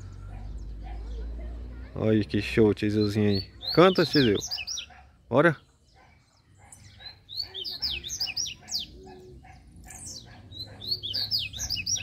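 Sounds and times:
songbirds singing: 0.0s - 12.0s
quick high bird chirping: 2.9s - 5.2s, 5.9s - 12.0s.

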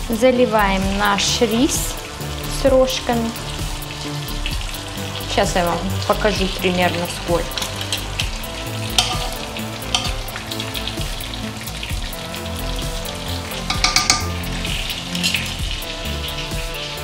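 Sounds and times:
food sizzling in hot oil: 0.0s - 17.0s
kitchenware clicks and knocks: 9.0s - 9.4s, 10.0s - 10.2s, 13.7s - 14.4s.

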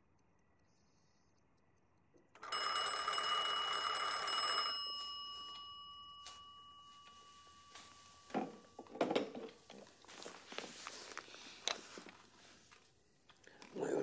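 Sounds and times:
bell ringing: 2.4s - 9.3s.

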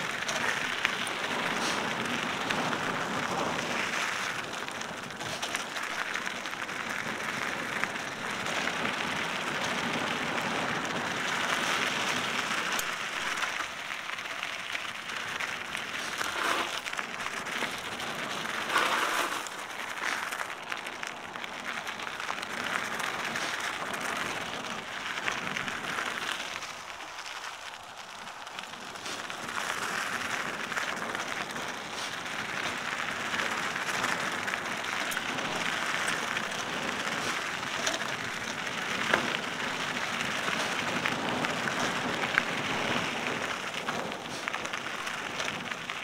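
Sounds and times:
bike tyres crackling on dirt: 0.0s - 46.0s.

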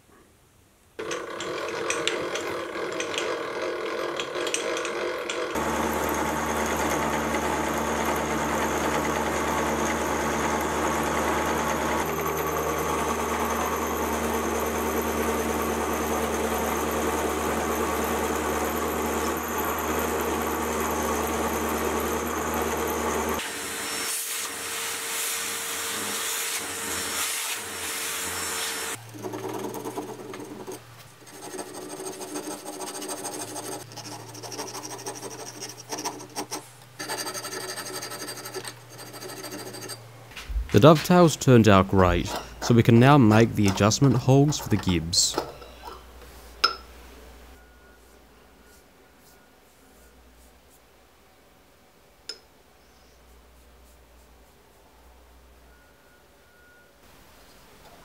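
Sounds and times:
milling machine motor hum: 1.0s - 23.4s
cutter whine on steel: 1.0s - 30.8s
brush scratching metal chips: 28.8s - 40.0s.

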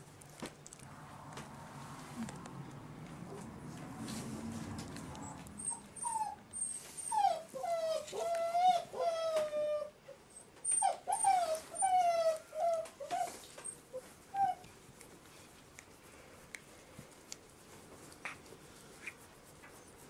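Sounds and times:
puppy whimpering and whining: 5.2s - 14.6s.

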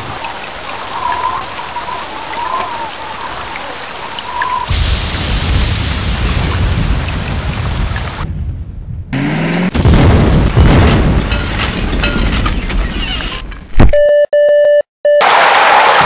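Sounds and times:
heavy rain: 0.0s - 8.5s, 9.2s - 12.2s
rumbling thunder: 4.7s - 12.4s.

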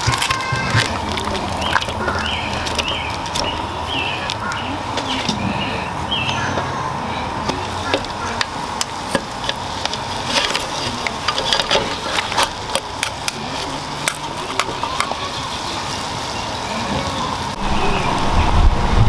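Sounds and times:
lobster shells clicking on metal pot: 0.0s - 5.4s, 7.5s - 15.3s
low rumble: 17.5s - 19.0s.

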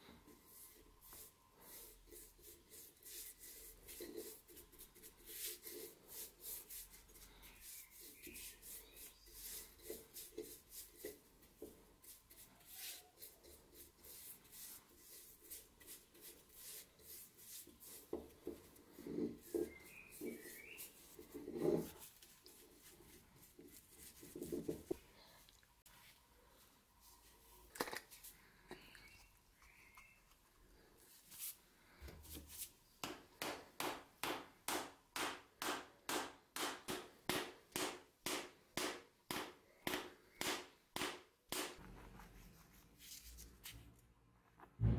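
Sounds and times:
paintbrush strokes on wood: 0.1s - 25.0s, 30.9s - 32.8s.

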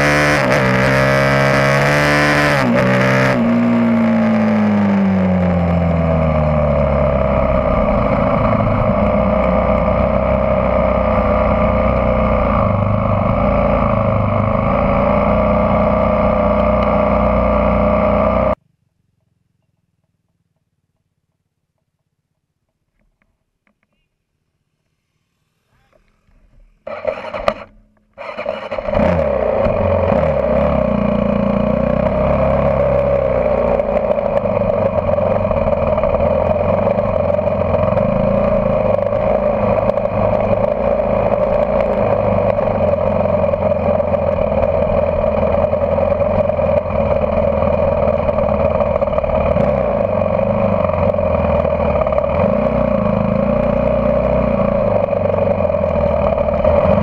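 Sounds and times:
off-road vehicle engine: 0.0s - 57.0s.

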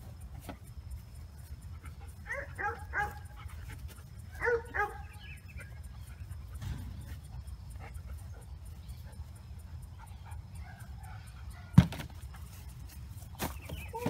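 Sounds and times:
movement sounds: 11.2s - 14.0s.

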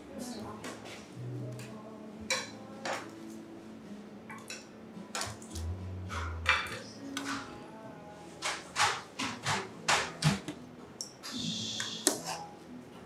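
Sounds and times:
dishes and utensils clinking: 2.3s - 3.1s, 4.3s - 7.6s.

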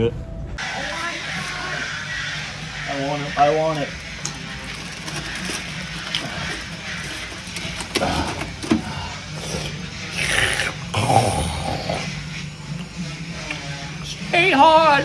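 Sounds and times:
paper bag rustling: 4.6s - 8.8s.

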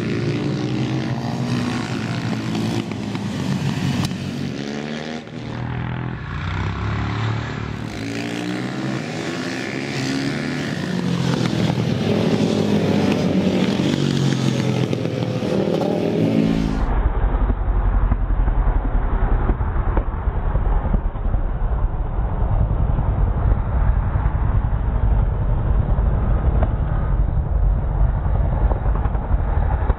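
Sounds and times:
motorcycle engines revving: 0.0s - 18.8s
heavy low rumble: 16.3s - 29.9s.

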